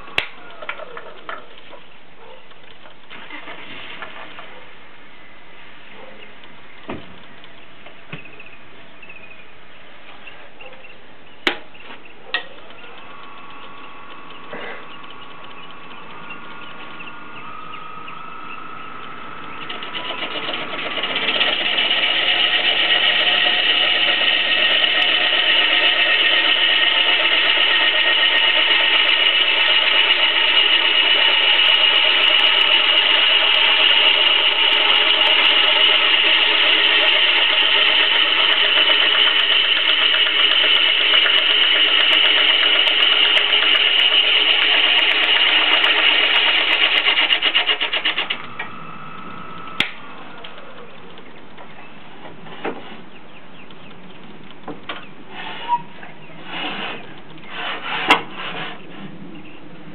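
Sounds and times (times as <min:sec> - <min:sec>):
wood lathe motor whine: 0:12.9 - 0:50.6
gouge cutting spinning log: 0:19.0 - 0:48.7, 0:56.4 - 0:58.9.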